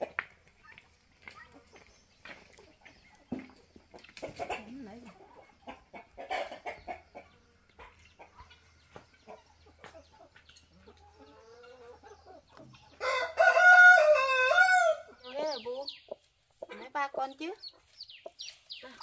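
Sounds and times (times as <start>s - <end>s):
chickens clucking: 0.0s - 19.0s
rooster crowing: 13.0s - 15.1s.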